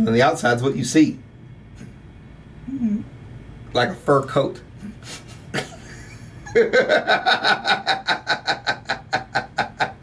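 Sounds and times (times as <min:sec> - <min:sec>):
people laughing hard: 0:05.5 - 0:10.0.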